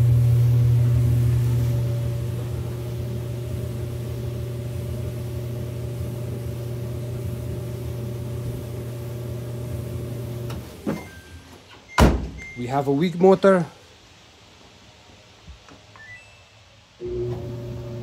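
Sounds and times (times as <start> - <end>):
dryer motor humming: 0.0 - 10.8, 17.0 - 18.0.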